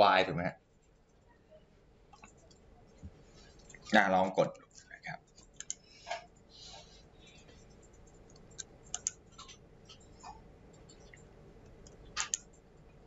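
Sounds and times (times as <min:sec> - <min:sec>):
computer mouse clicking: 0:02.1 - 0:03.8, 0:05.3 - 0:06.5, 0:07.5 - 0:12.9.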